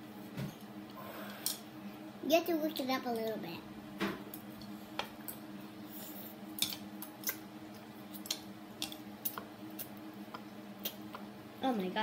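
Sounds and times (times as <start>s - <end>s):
steady low hum: 0.0s - 12.0s
chopsticks clicking against bowls: 6.6s - 7.4s, 8.1s - 11.3s.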